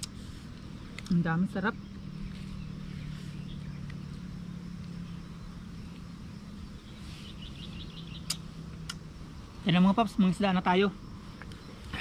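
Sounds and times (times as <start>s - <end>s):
steady low hum: 0.0s - 12.0s
bird trilling: 5.0s - 8.6s.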